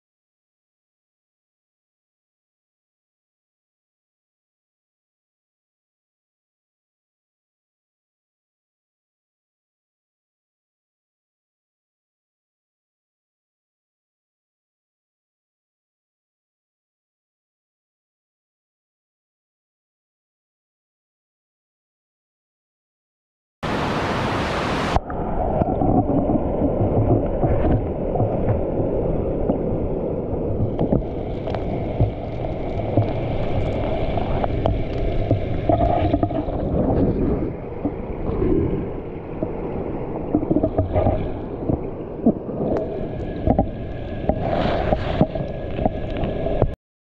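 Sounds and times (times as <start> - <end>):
stream water rushing: 23.6 - 46.7
underwater stream rumble: 23.6 - 46.8.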